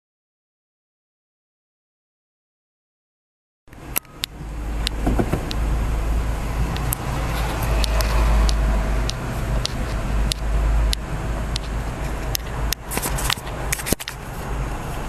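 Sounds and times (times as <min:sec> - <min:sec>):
sharp clicks: 0:03.7 - 0:05.7, 0:06.7 - 0:14.3
road and engine rumble in car: 0:03.7 - 0:15.0.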